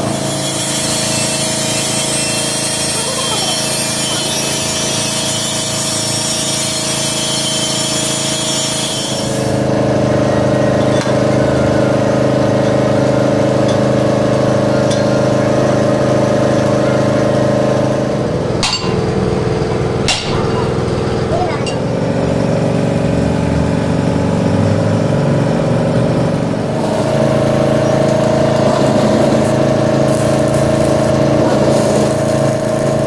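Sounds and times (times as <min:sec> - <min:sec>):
power tool running with hiss: 0:00.0 - 0:33.0.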